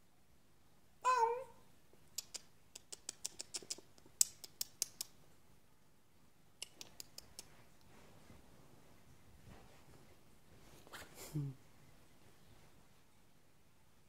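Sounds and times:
cat meowing: 1.0s - 1.6s
sharp light clicks: 2.2s - 5.2s.

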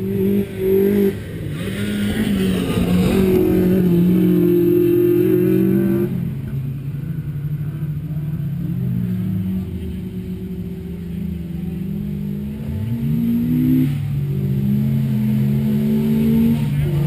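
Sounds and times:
car engine revving high: 11.3s - 17.0s.

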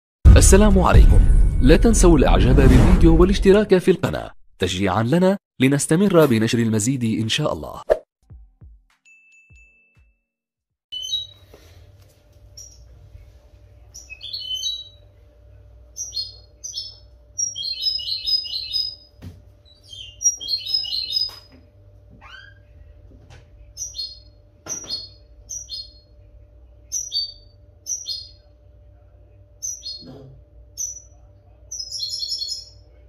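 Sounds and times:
faint steady hum: 11.2s - 33.0s
finch twittering: 13.9s - 15.0s, 16.0s - 21.5s, 23.8s - 26.1s, 26.9s - 28.4s, 29.6s - 30.2s, 30.8s - 32.8s.

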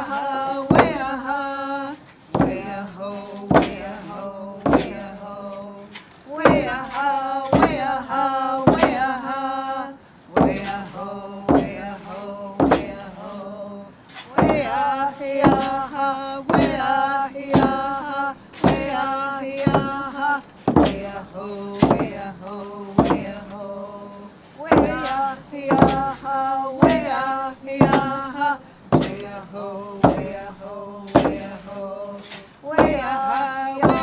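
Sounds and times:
frame drum beats: 0.0s - 1.7s, 2.3s - 9.4s, 10.4s - 13.4s, 14.3s - 34.0s
men and women singing: 0.0s - 34.0s.

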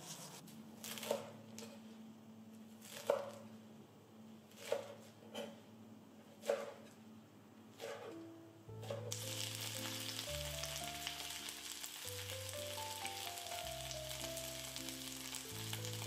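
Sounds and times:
knife cutting on wooden board: 4.6s - 5.6s.

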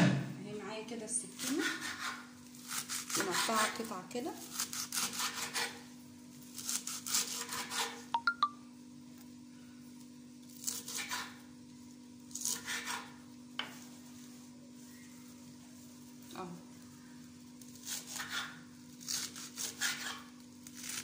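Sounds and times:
knife chopping herbs: 1.4s - 5.8s, 6.6s - 8.0s, 10.6s - 11.4s, 12.3s - 13.2s, 17.8s - 21.0s.

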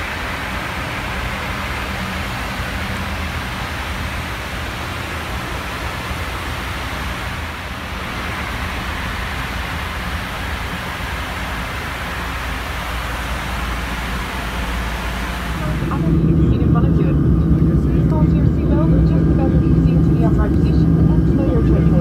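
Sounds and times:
airflow hiss: 0.0s - 16.1s
constant low hum: 0.0s - 22.0s.

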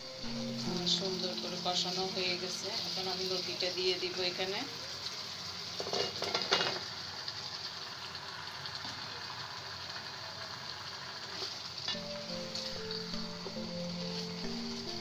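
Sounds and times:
food sizzling in pan: 0.0s - 15.0s
food clattering into pan: 5.8s - 6.9s.

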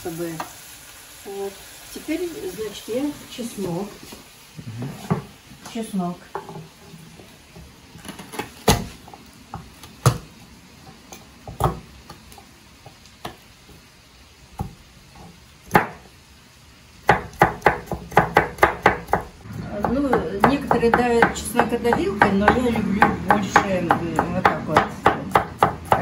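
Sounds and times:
knife chopping garlic: 15.7s - 16.0s, 17.0s - 26.0s.

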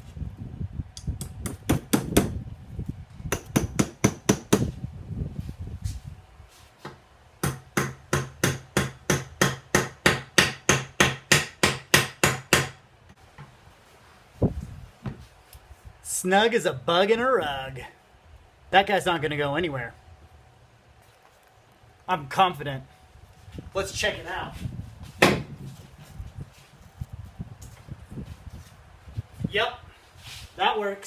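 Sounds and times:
hammer driving a wedge into wood: 1.4s - 2.4s, 3.3s - 4.7s, 6.8s - 12.8s, 25.2s - 25.5s.

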